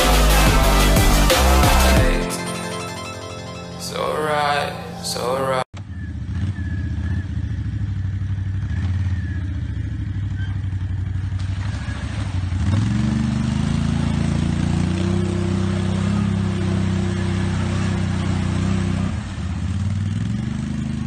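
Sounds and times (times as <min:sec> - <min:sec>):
atv engine revving: 0:05.1 - 0:21.0
wheels churning through muddy water: 0:08.6 - 0:21.0.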